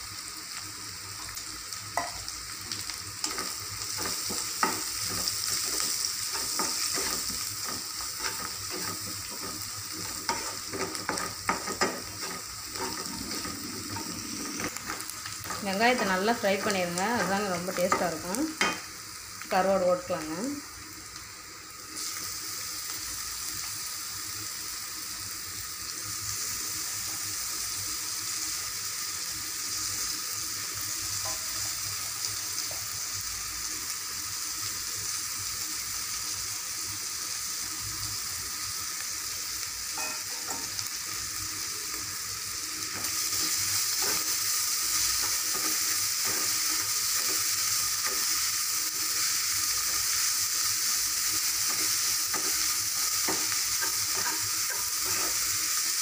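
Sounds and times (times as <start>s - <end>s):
fish sizzling in oil: 0.0s - 56.0s
wooden spatula scraping pan: 6.4s - 18.1s.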